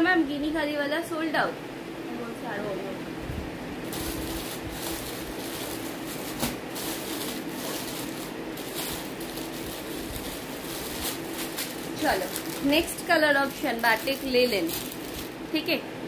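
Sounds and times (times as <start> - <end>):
steady low hum: 0.0 - 16.0
fabric rustling: 3.8 - 15.5.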